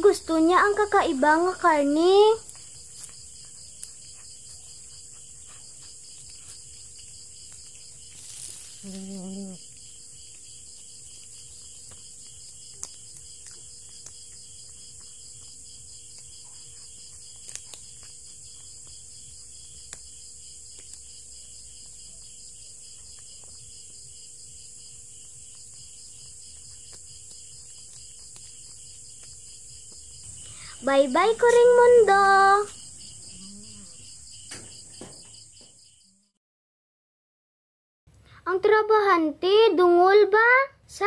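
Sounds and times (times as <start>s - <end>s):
night insects chirring: 0.0s - 36.3s
cat chewing food: 2.5s - 30.8s.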